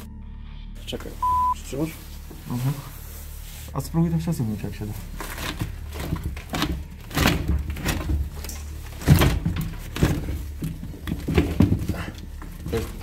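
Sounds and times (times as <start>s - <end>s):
wooden knocks and thuds: 5.4s - 13.0s.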